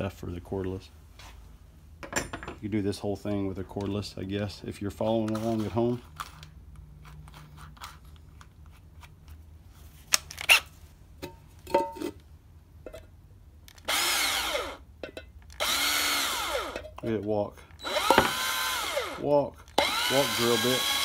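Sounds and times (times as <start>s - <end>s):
cordless drill motor whine: 13.8s - 14.8s, 15.6s - 16.8s, 17.8s - 19.2s, 19.8s - 21.0s.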